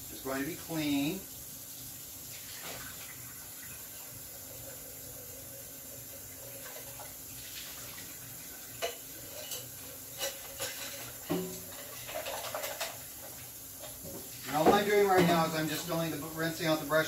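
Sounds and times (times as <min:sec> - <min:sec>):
water running: 0:00.0 - 0:17.0.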